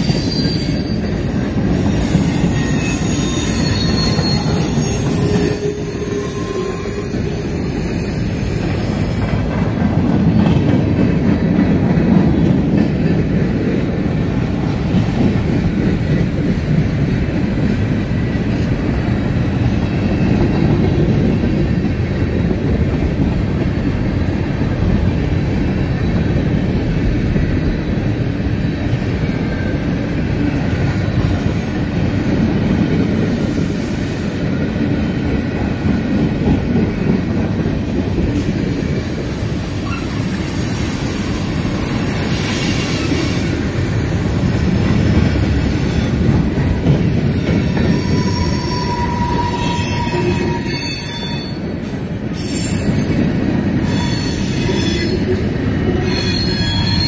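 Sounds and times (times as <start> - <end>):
high wheel squeal: 0.0 - 9.6, 45.8 - 51.8, 52.4 - 53.1, 53.8 - 55.3, 56.0 - 57.0
freight train rumbling past: 0.0 - 57.0.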